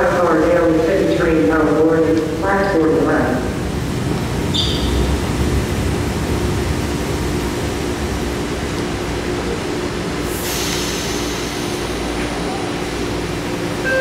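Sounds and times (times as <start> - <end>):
constant hum: 0.0 - 10.3
train low rumble: 0.0 - 14.0.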